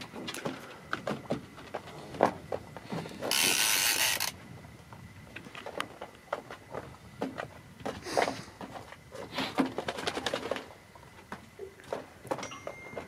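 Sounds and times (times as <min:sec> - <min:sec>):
rod and boat knocks and creaks: 0:00.0 - 0:13.0
fishing reel whirring: 0:03.3 - 0:04.4.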